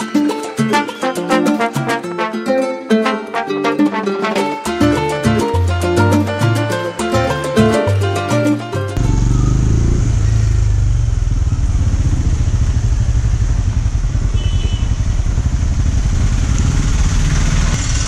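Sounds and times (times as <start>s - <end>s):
motorcycle engine at low speed: 9.0s - 18.0s.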